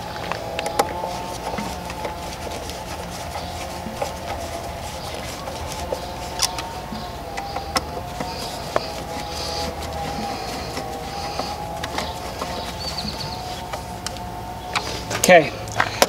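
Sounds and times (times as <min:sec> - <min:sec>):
background hum: 0:00.0 - 0:16.0
screws being tightened clicks: 0:05.2 - 0:14.2.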